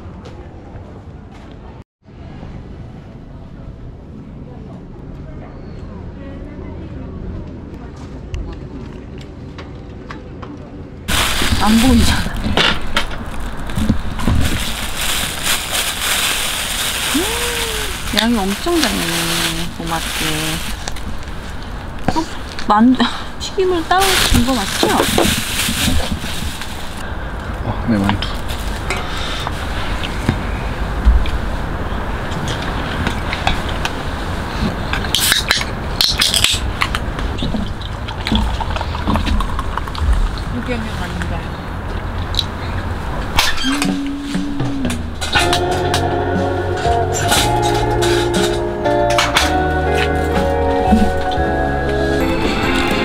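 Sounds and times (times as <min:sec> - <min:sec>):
plastic bags rustling: 0:11.1 - 0:30.2.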